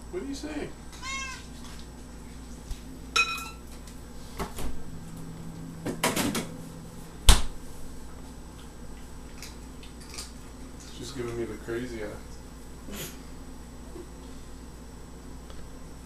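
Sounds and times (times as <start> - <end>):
cat meowing: 1.0 - 1.5.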